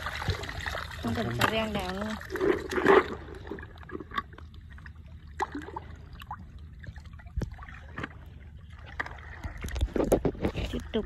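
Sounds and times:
pond water splashing against bank: 0:00.0 - 0:11.0.

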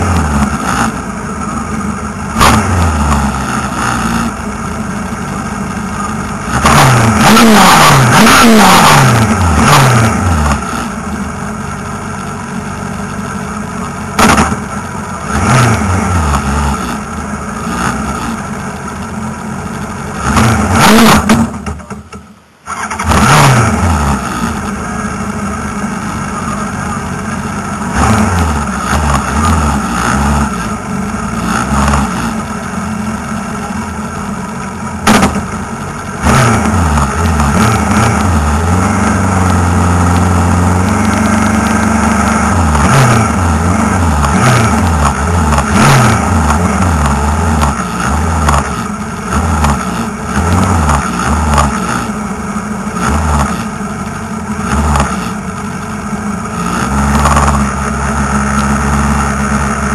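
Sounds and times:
race car engine revving: 0:02.3 - 0:04.4, 0:06.0 - 0:11.0, 0:14.1 - 0:18.5, 0:20.1 - 0:21.9, 0:22.7 - 0:24.8, 0:27.5 - 0:32.7, 0:35.0 - 0:55.6, 0:56.3 - 0:59.9.

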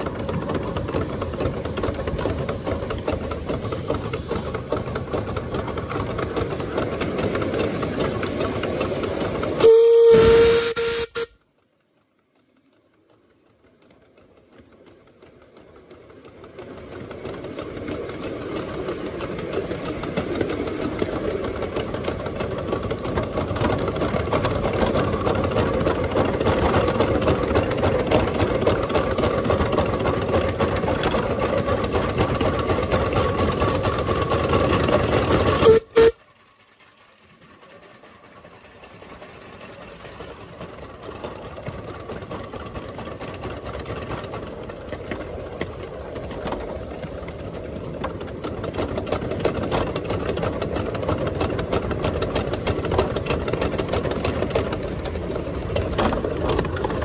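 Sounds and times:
miniature steam locomotive running: 0:00.0 - 0:57.0
steam whistle: 0:09.5 - 0:11.4, 0:35.6 - 0:36.2.

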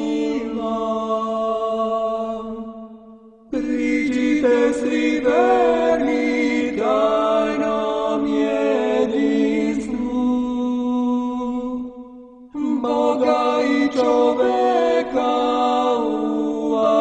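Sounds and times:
choir chanting a cappella: 0:00.0 - 0:17.0.

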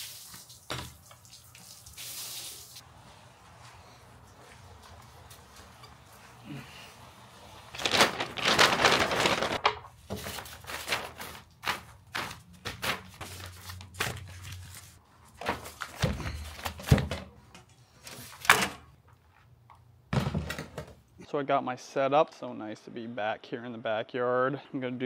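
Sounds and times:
paper bags rustling and tearing: 0:07.7 - 0:17.0
appliance set down with thunks: 0:20.1 - 0:21.0.

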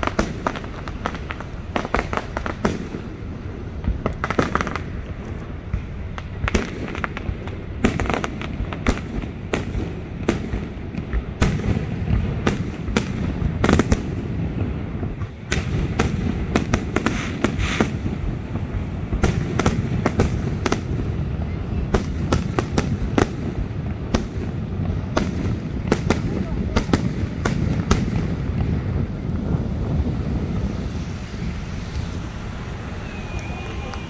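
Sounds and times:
fireworks shells bursting: 0:14.8 - 0:20.8
low rumble: 0:23.0 - 0:34.0.

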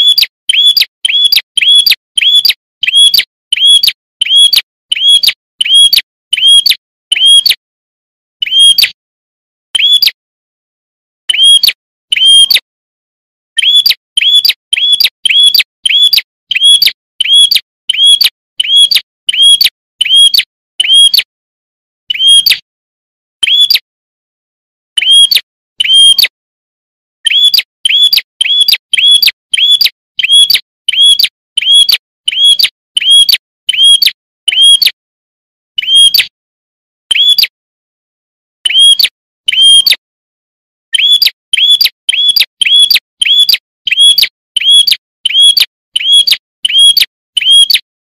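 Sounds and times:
bird chirping high and sharp: 0:00.0 - 0:07.6, 0:08.4 - 0:09.0, 0:09.7 - 0:10.2, 0:11.3 - 0:12.7, 0:13.6 - 0:21.3, 0:22.1 - 0:22.7, 0:23.4 - 0:23.9, 0:25.0 - 0:26.4, 0:27.2 - 0:35.0, 0:35.8 - 0:36.4, 0:37.1 - 0:37.6, 0:38.6 - 0:40.0, 0:40.9 - 0:47.9.

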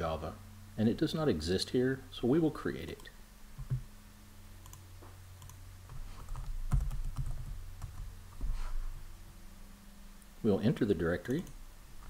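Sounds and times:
typing on computer keyboard: 0:06.3 - 0:08.1.

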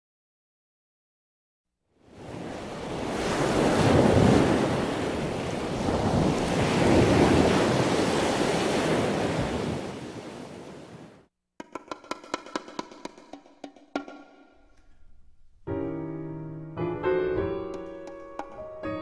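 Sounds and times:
waves breaking on beach: 0:02.0 - 0:11.3.

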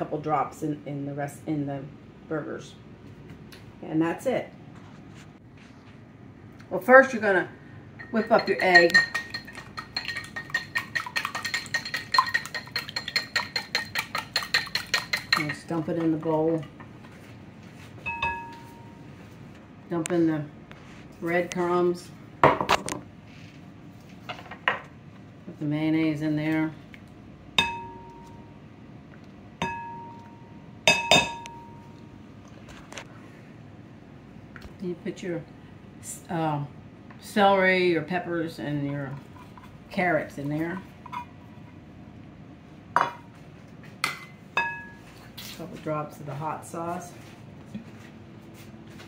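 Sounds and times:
whisk clicking against bowl: 0:08.4 - 0:15.6
faint steady ring: 0:18.0 - 0:19.4, 0:27.6 - 0:28.7, 0:29.6 - 0:32.2.

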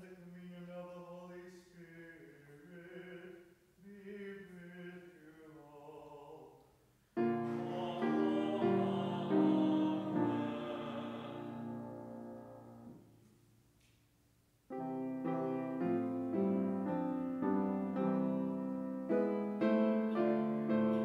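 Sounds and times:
voices chanting: 0:07.2 - 0:11.9
church organ chords: 0:07.2 - 0:13.0, 0:14.7 - 0:21.0.

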